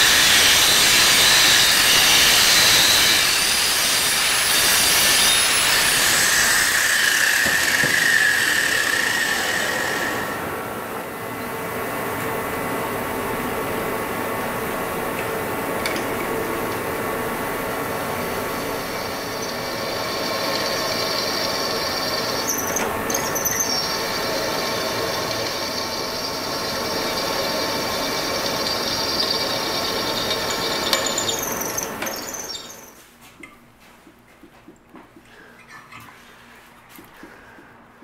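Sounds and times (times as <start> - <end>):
power drill squealing through steel: 0.0 - 10.4, 18.7 - 33.0.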